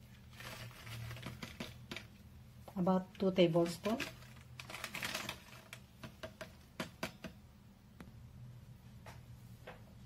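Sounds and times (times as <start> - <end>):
plastic sachet rustling: 0.0 - 2.2, 3.1 - 6.3.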